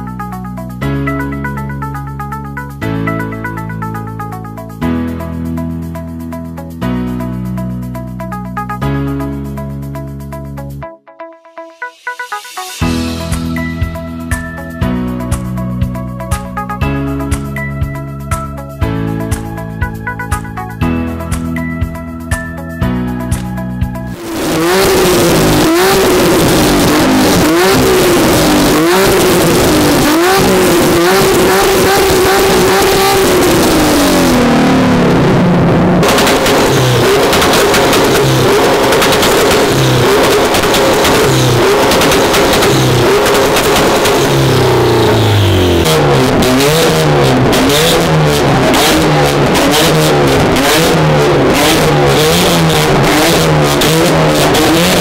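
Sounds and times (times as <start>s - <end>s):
car engines revving: 24.1s - 55.0s
exhaust pops and crackles: 24.3s - 55.0s.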